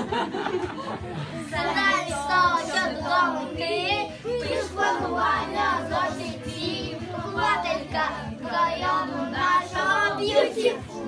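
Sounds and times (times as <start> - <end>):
music backing track: 0.0 - 11.0
children singing: 1.2 - 11.0.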